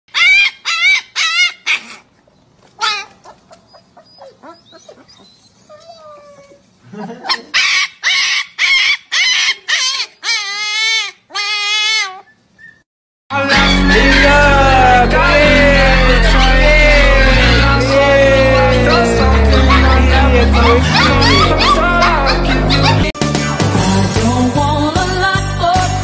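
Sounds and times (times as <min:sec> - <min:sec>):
puppy yelping and howling: 0:00.1 - 0:02.0, 0:02.8 - 0:06.6, 0:07.3 - 0:12.8, 0:18.9 - 0:23.1.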